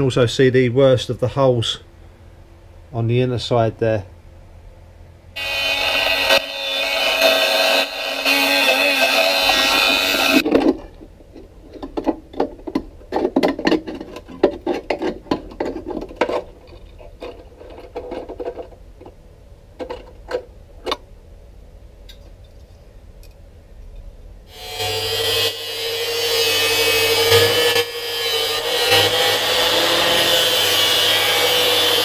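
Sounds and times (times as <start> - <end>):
rotary tool cutting sheet steel: 5.4 - 10.4, 24.5 - 32.0.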